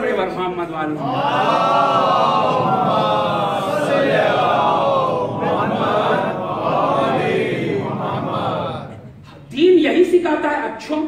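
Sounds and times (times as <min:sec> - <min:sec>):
men chanting in unison: 0:01.0 - 0:09.1.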